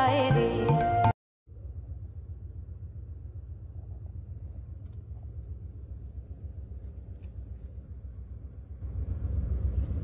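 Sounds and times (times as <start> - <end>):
low rumble inside train car: 1.5 - 10.0.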